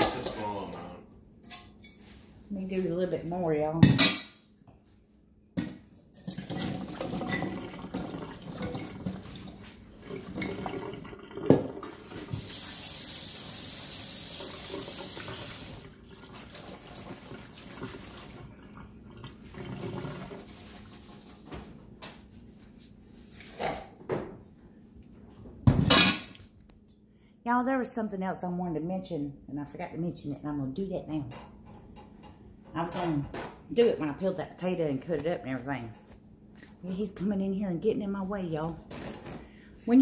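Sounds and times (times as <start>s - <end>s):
tap water running: 6.1s - 21.6s.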